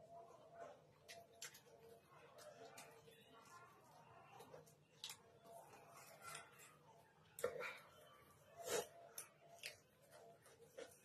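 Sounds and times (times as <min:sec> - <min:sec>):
soft wet chewing clicks: 0:01.0 - 0:07.6, 0:09.0 - 0:11.0.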